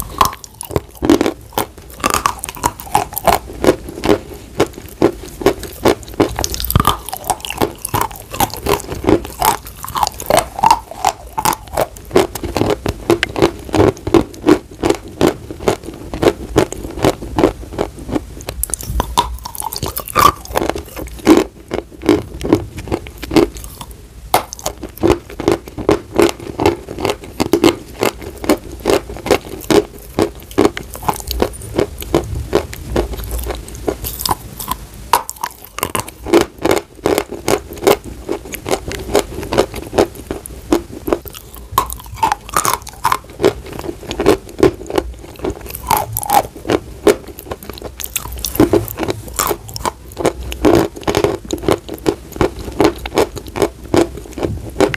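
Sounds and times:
chalk being crunched by teeth: 18.4s - 21.5s, 41.1s - 54.9s.

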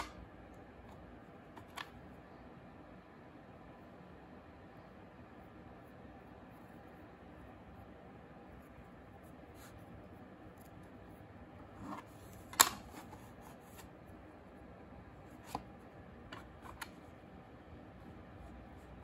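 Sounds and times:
soft rub of clay: 5.4s - 14.2s, 17.9s - 19.0s.

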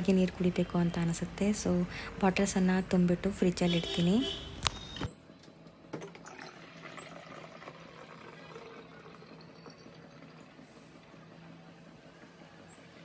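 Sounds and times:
water streaming into plastic bottle: 6.0s - 11.2s.

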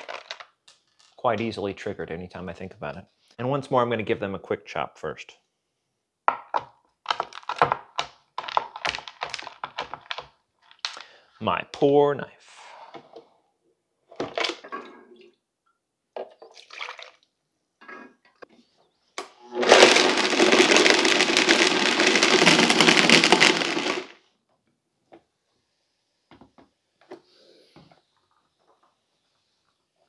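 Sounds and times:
blender running on high: 19.6s - 24.1s.

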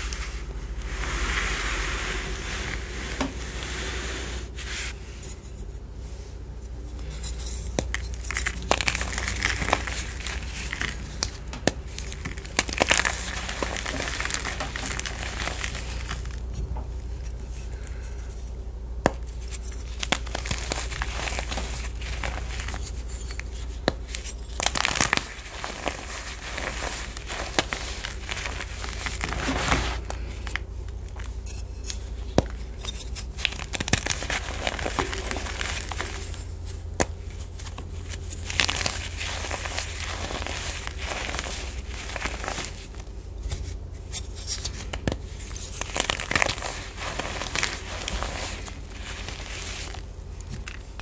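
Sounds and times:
powder rubbing: 7.6s - 18.4s, 19.1s - 51.0s
chalk chunks snapping: 7.7s - 16.4s, 31.9s - 42.8s, 44.5s - 50.9s
chalk crunching by hand: 7.7s - 16.4s, 31.2s - 50.8s.

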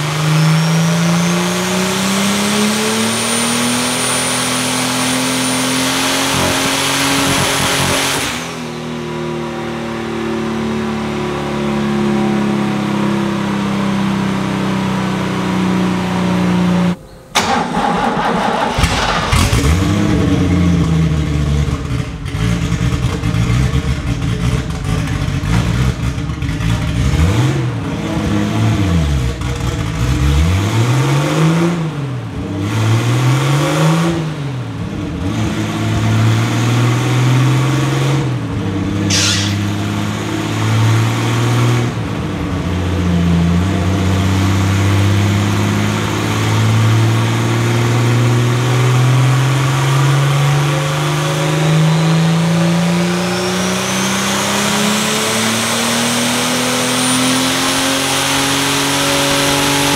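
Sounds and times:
race car engine revving: 0.0s - 59.9s
short sharp burst of noise: 39.1s - 39.9s.

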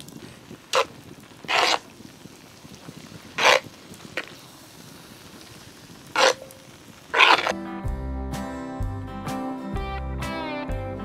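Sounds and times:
metal spoon scraping pot: 1.5s - 1.8s, 6.2s - 6.5s, 7.2s - 7.6s.

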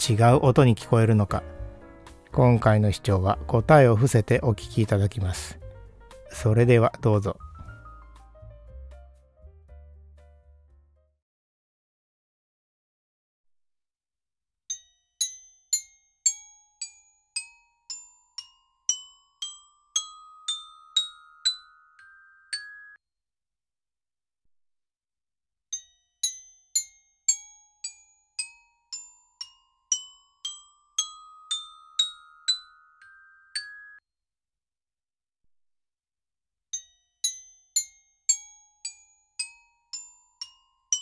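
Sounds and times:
glockenspiel rising run: 14.7s - 23.0s, 25.8s - 34.0s.

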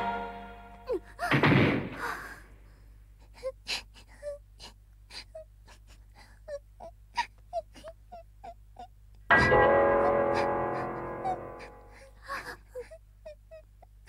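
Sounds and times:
cartoon music: 0.0s - 0.9s, 9.3s - 11.9s
small child sobbing: 0.8s - 1.4s, 3.2s - 9.0s, 10.0s - 14.0s.

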